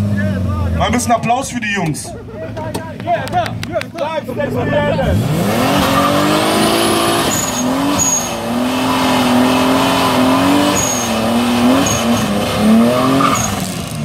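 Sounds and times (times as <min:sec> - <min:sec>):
car engine revving high: 0:04.4 - 0:14.0
tyres squealing on asphalt: 0:04.4 - 0:14.0.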